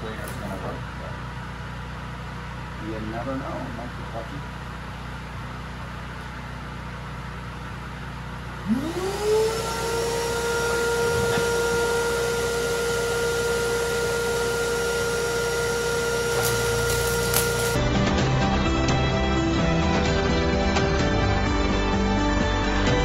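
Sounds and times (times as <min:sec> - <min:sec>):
welder engine hum: 0:00.0 - 0:22.4
vacuum cleaner motor whine: 0:07.4 - 0:18.1.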